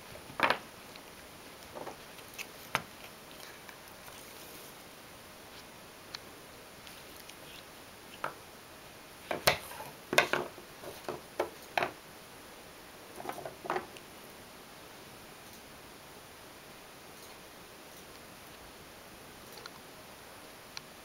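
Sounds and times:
branch knocking on wooden floor: 13.2s - 13.9s.

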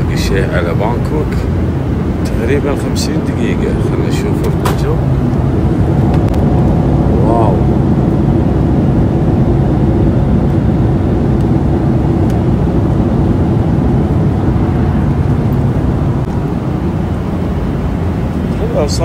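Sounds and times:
jet airliner cabin drone: 0.0s - 19.0s.

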